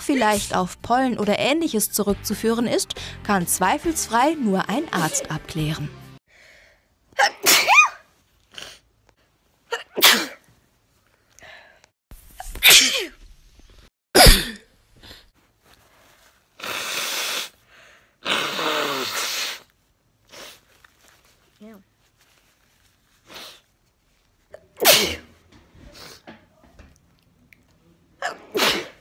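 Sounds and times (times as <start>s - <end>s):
woman sneezing: 7.2s - 8.0s, 9.7s - 10.4s, 12.6s - 13.1s, 14.2s - 14.6s, 18.2s - 19.6s, 24.8s - 25.3s, 28.2s - 29.0s.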